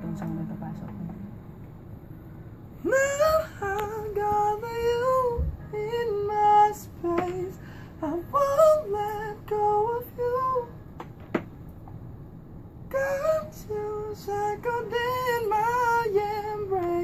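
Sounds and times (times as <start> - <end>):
man singing vocal runs: 2.8 - 10.8, 12.9 - 17.0
singer breathing: 7.6 - 8.0.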